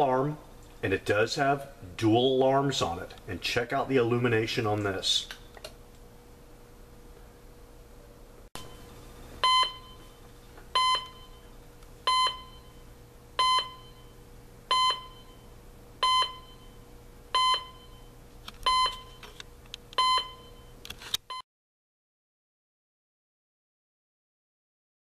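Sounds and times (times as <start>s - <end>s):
alarm clock beeps: 9.4s - 10.1s, 10.8s - 11.4s, 12.1s - 12.8s, 13.4s - 14.1s, 14.7s - 15.4s, 16.0s - 16.8s, 17.4s - 18.1s, 18.7s - 19.2s, 20.0s - 20.7s.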